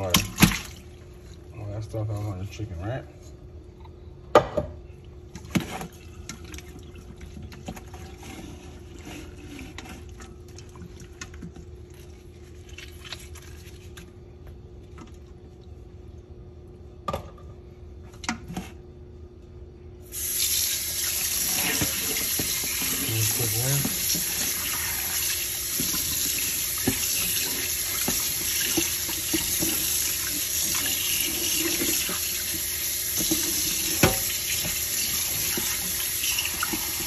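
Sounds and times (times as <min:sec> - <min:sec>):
water running into steel sink: 0:20.2 - 0:37.0.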